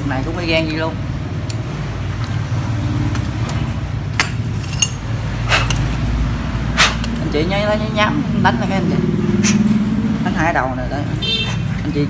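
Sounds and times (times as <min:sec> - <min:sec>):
small metal parts clicking: 0:04.2 - 0:06.0.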